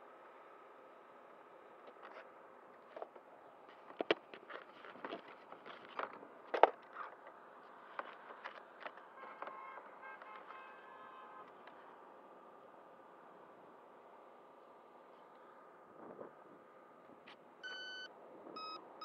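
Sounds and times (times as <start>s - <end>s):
handling clicks taps and scrapes: 1.8s - 9.6s.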